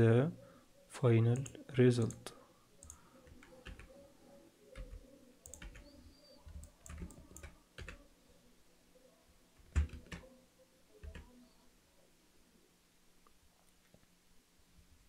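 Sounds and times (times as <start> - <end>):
keyboard and mouse clicks: 1.3 - 3.9, 4.8 - 5.9, 6.5 - 8.0.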